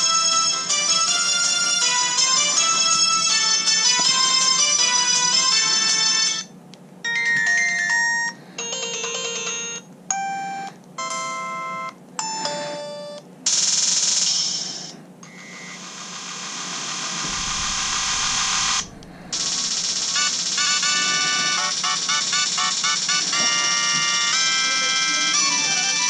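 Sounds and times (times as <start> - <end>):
phone ringtone melodies: 0.0 - 15.8, 18.3 - 26.0
percussive ringtone tones: 17.3 - 26.0.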